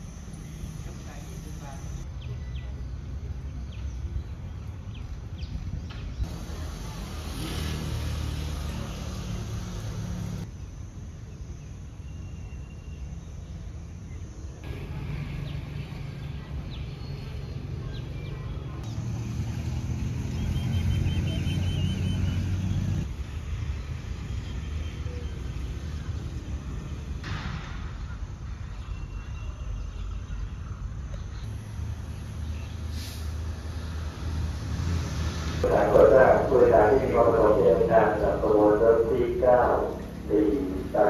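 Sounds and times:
diesel train engine rumbling: 14.6s - 41.0s.

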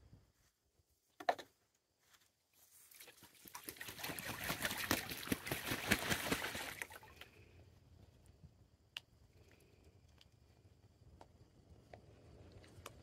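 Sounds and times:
goose splashing water: 2.9s - 7.4s.

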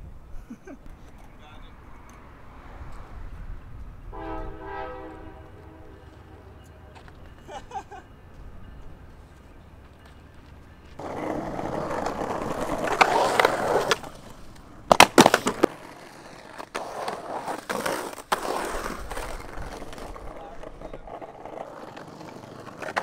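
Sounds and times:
skateboard wheels rolling on concrete: 0.0s - 23.0s
skateboard clacking on concrete: 9.9s - 23.0s.

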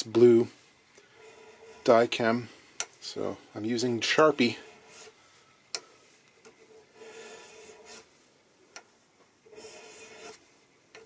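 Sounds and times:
hand file rasping on brass: 1.1s - 2.0s, 6.6s - 8.1s, 9.5s - 10.4s.

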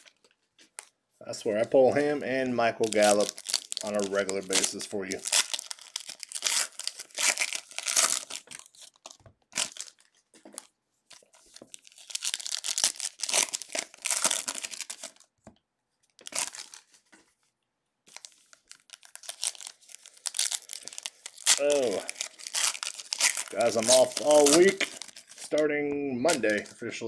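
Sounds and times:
plastic wrappers crinkling: 0.0s - 0.9s, 1.5s - 15.3s, 16.1s - 17.4s, 18.1s - 26.8s
wrappers being torn open: 2.8s - 15.3s, 16.1s - 17.0s, 18.1s - 25.6s, 26.3s - 26.8s.

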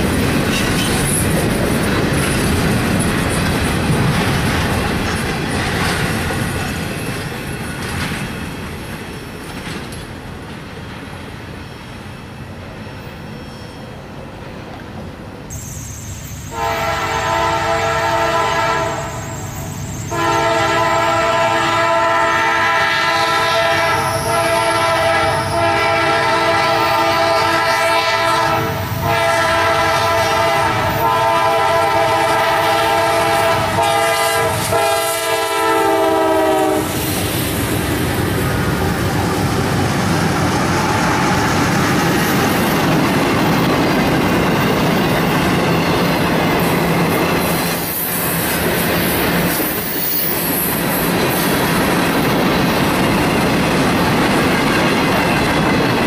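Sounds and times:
steel wheels on rail: 0.0s - 56.0s
train cars rumbling past: 0.0s - 56.0s
locomotive air horn: 16.5s - 37.0s.

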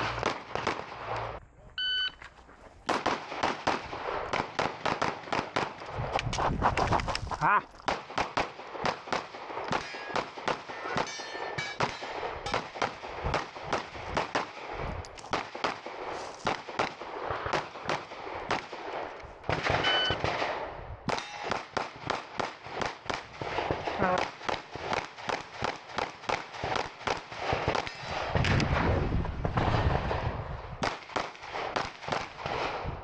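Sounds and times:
pistol shots echoing: 0.0s - 1.4s, 2.9s - 5.8s, 7.9s - 14.7s, 15.3s - 28.6s.

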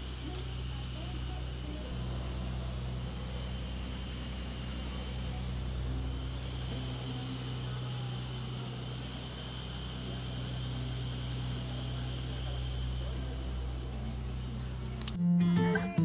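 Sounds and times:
boat engine droning: 0.0s - 16.0s.

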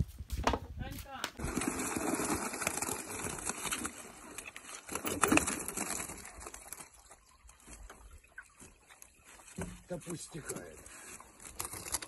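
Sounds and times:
water splashing off a net: 1.4s - 9.9s.

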